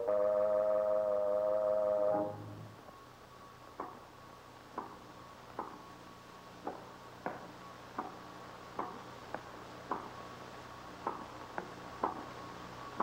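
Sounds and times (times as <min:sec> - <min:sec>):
low film soundtrack hum: 0:00.0 - 0:13.0.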